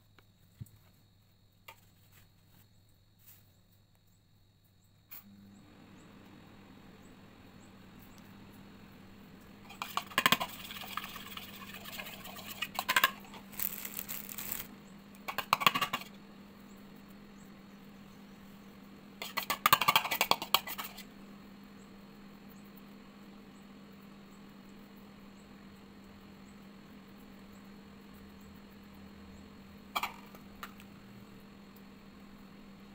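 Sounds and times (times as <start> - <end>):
spoon scraping and clinking bowl: 9.7 - 13.5.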